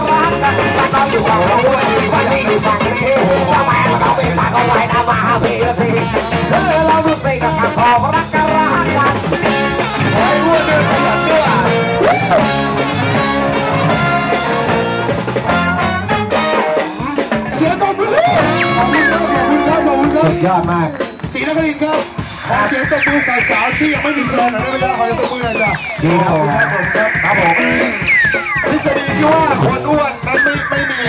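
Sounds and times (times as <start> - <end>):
person singing into microphone: 0.0 - 9.3, 17.0 - 20.8
trombone: 0.0 - 17.6, 18.4 - 20.4
trumpet: 0.0 - 20.7
bass guitar: 0.0 - 31.0
drum kit: 0.0 - 31.0
electric guitars: 0.0 - 31.0.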